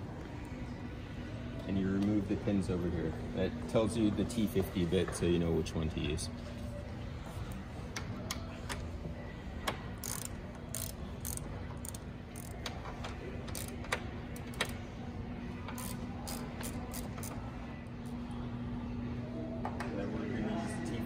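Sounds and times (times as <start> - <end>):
steady low hum: 0.0 - 21.0
hand ratchet clicking: 10.0 - 12.7, 13.5 - 14.8, 15.7 - 17.4.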